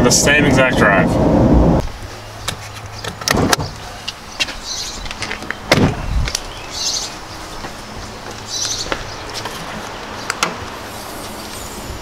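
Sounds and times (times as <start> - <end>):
steady low hum: 0.0 - 2.4.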